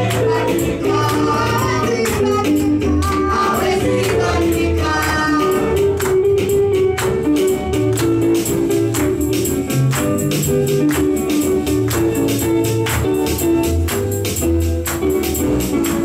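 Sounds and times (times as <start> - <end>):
voices singing: 0.0 - 5.8
gospel praise music: 0.0 - 16.0.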